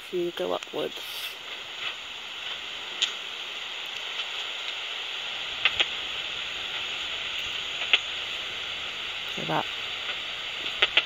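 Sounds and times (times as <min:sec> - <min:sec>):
bat detector hiss: 0:00.0 - 0:11.0
cricket chirp clicks: 0:05.6 - 0:06.0, 0:06.7 - 0:08.3.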